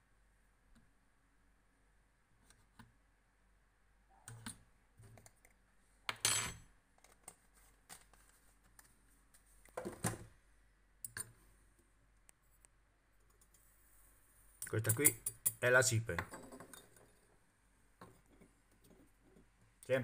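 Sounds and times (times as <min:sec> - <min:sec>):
light metal clicks and clinks: 0:14.6 - 0:15.6.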